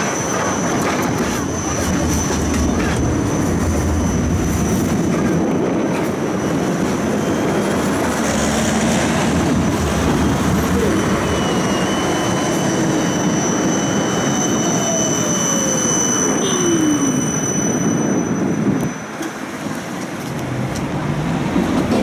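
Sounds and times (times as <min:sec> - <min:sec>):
tram wheels rumbling on track: 0:00.0 - 0:22.0
high-pitched squealing: 0:10.4 - 0:19.0.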